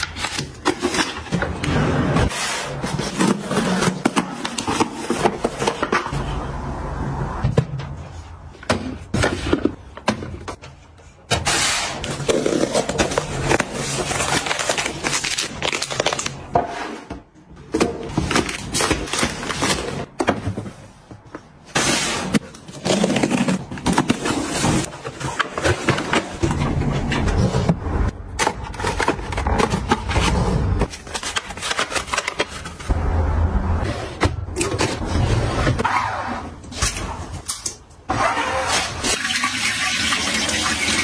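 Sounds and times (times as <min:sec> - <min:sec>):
storage drawers sliding: 0:00.0 - 0:06.4
plastic packs rustling in bin: 0:12.0 - 0:16.5.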